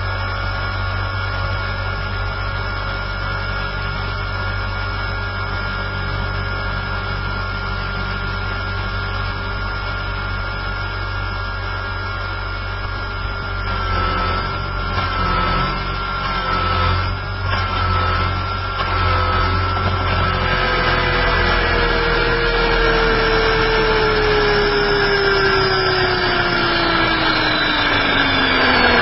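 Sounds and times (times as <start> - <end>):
model helicopter motor whining: 12.7 - 29.0.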